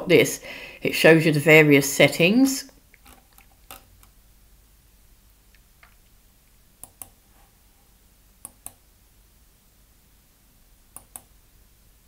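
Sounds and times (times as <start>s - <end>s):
faint computer mouse clicks: 6.8s - 7.2s, 10.9s - 11.3s.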